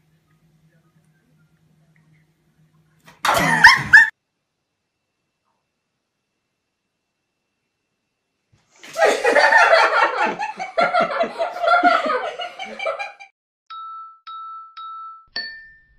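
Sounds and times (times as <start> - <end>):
person laughing hard: 3.3 - 4.1, 8.9 - 13.3.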